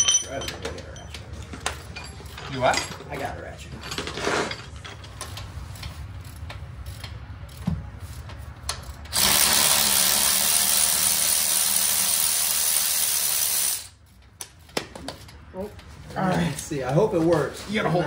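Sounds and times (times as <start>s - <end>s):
cordless power tool running: 9.1s - 13.9s.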